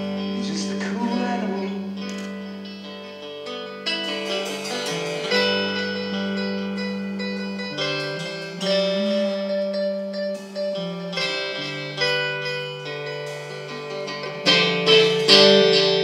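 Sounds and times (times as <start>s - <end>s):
electric guitars: 0.0s - 16.0s
live band playing instrumental: 0.0s - 16.0s
bass line: 4.8s - 12.6s.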